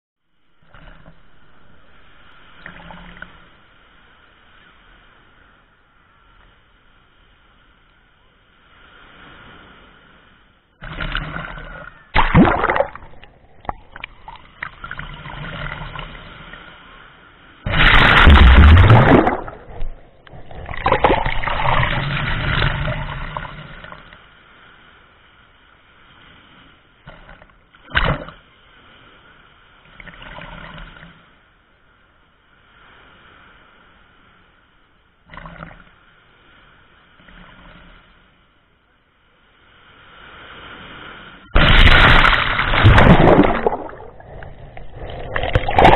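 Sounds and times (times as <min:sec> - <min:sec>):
waves breaking and sloshing: 0:00.2 - 0:45.9
water splashing on camera: 0:10.8 - 0:16.7, 0:17.6 - 0:24.2, 0:27.2 - 0:28.5, 0:40.8 - 0:45.9.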